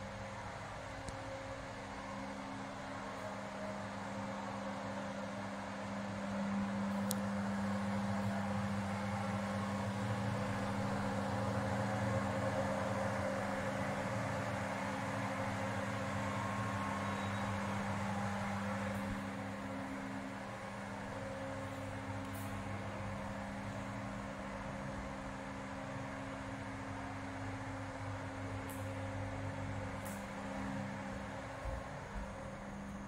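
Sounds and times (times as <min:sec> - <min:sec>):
machine hum: 0:00.0 - 0:33.0
faint click: 0:07.0 - 0:07.3, 0:28.7 - 0:29.0.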